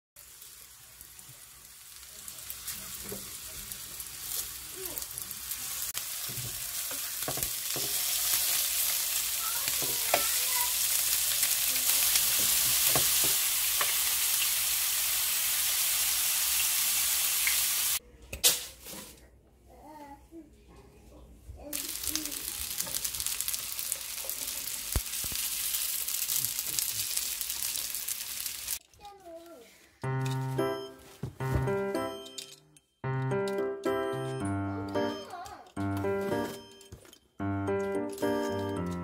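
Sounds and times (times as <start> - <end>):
food sizzling in hot oil: 0.2 - 18.0, 21.7 - 28.8
chopsticks tapping a pan: 9.7 - 10.4, 12.3 - 14.0.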